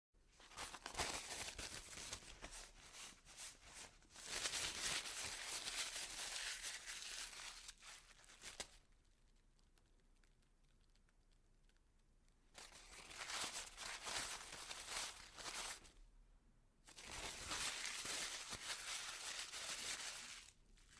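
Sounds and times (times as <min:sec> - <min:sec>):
paper crunching: 0:00.4 - 0:08.8, 0:12.6 - 0:15.9, 0:16.9 - 0:20.9.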